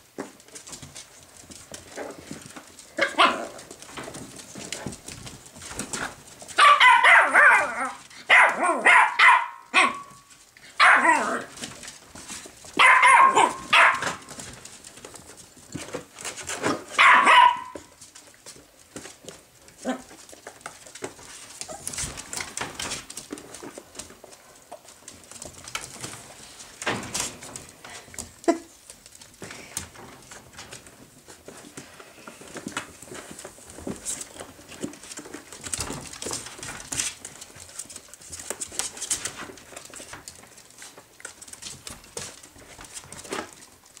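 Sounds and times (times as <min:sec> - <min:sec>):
scratching in plastic basket: 0:00.2 - 0:44.0
puppy yelp: 0:06.6 - 0:11.5, 0:12.8 - 0:14.2, 0:16.9 - 0:17.9.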